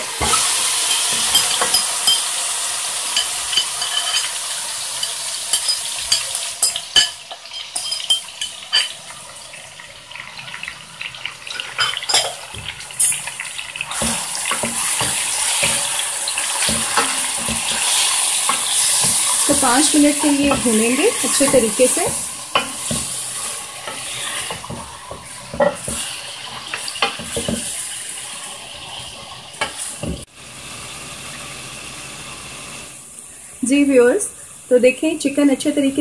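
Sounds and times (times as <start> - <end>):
chicken sizzling in hot oil: 0.0 - 36.0.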